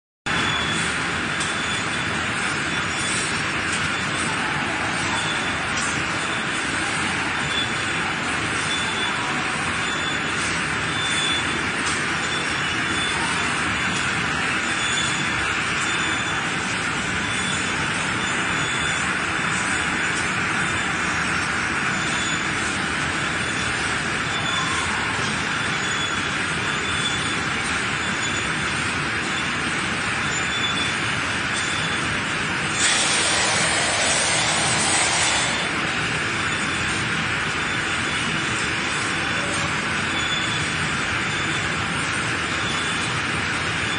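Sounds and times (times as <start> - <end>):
machine rushing noise: 0.3 - 39.2
loud hiss: 32.7 - 35.8.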